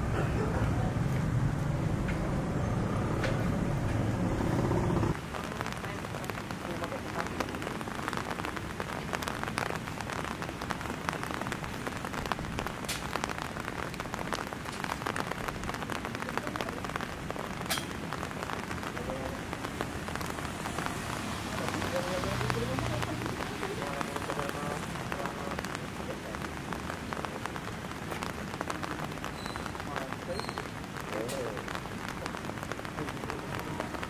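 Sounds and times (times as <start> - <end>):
low rumble: 0.0 - 5.2
rain pattering on hard surfaces: 0.0 - 34.0.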